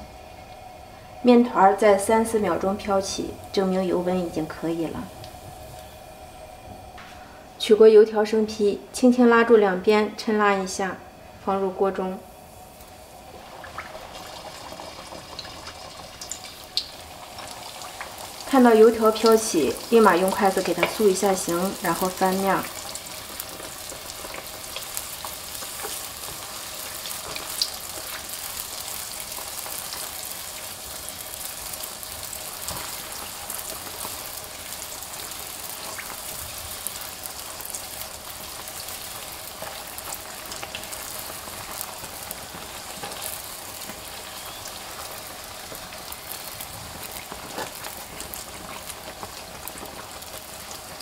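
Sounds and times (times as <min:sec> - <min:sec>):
dough deep-frying in oil: 0:11.6 - 0:51.0.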